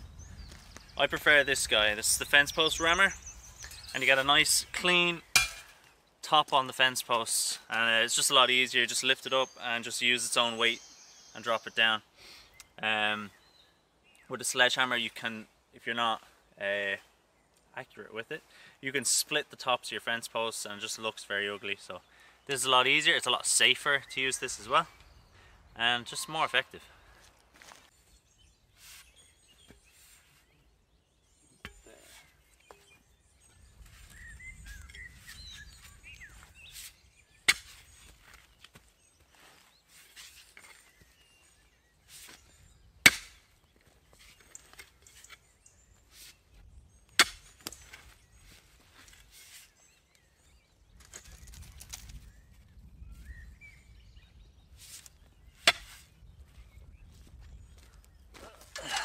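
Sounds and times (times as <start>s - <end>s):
birds chirping: 0.0s - 59.0s
pick striking stony ground: 5.2s - 5.9s, 31.6s - 33.0s, 37.5s - 38.0s, 43.0s - 43.5s, 47.1s - 48.1s, 55.6s - 56.1s.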